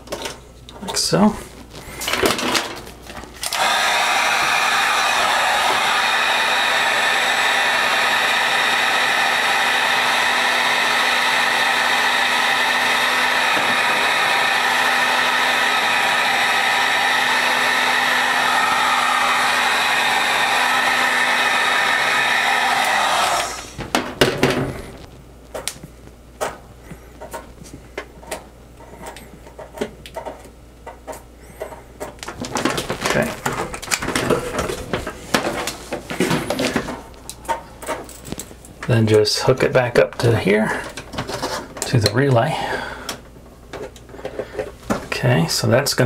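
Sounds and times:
heat gun blowing: 3.4s - 23.9s.

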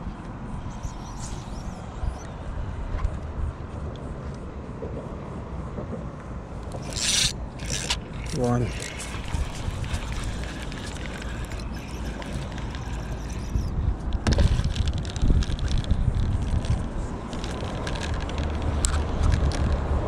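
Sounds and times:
fishing reel whirring and clicking: 0.6s - 2.3s, 6.6s - 20.0s
wind on microphone: 6.7s - 20.0s.

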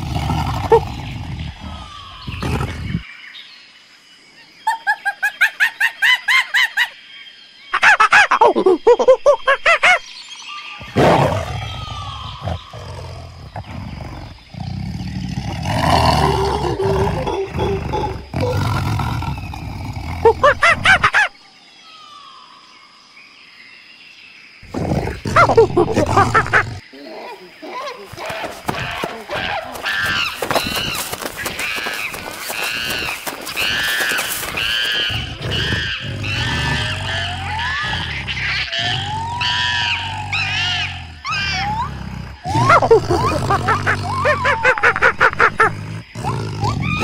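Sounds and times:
tiger growling: 0.0s - 3.0s, 10.8s - 21.2s, 24.6s - 27.1s, 28.0s - 47.0s
monkey high-pitched calls: 27.2s - 45.2s.

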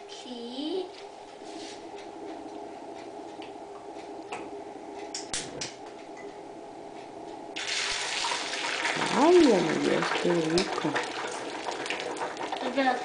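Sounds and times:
steady low hum: 0.0s - 13.0s
oil crackling in frying pan: 7.6s - 13.0s.

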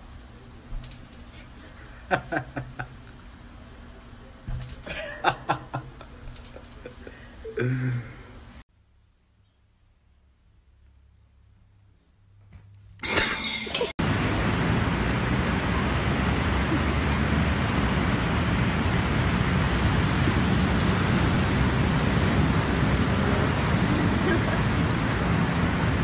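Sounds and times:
ocean surf roaring: 14.0s - 26.0s.

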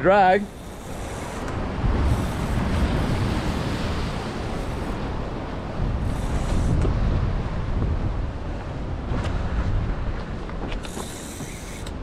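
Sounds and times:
wind buffeting microphone: 0.0s - 12.0s
surf breaking on rocks: 1.2s - 8.1s.

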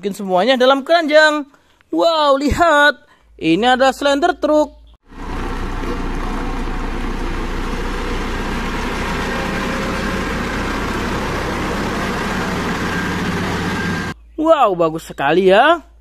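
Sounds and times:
road roller diesel engine running: 5.0s - 14.2s.

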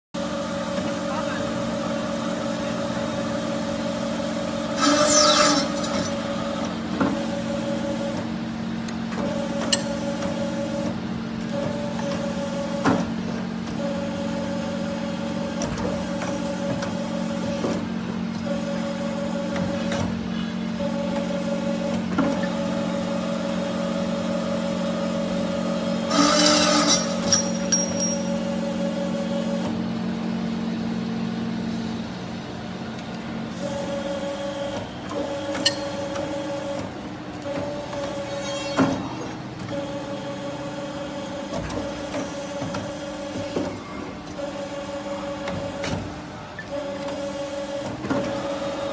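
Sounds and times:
higher machine tone: 38.0s - 39.6s.

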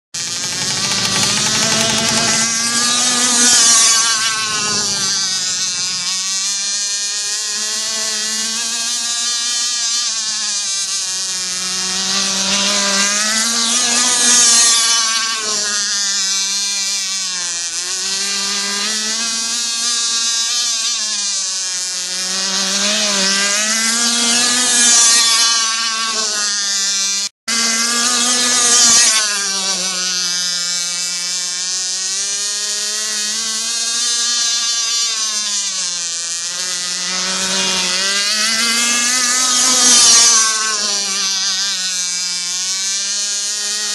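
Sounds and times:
racing boat engine: 0.2s - 8.6s, 11.2s - 19.3s, 22.1s - 31.6s, 36.4s - 42.5s.

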